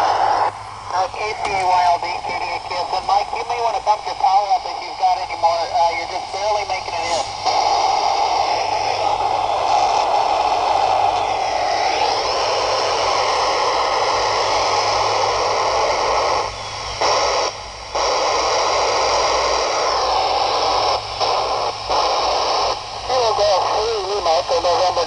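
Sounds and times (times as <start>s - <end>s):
radio static hiss: 0.0s - 25.0s.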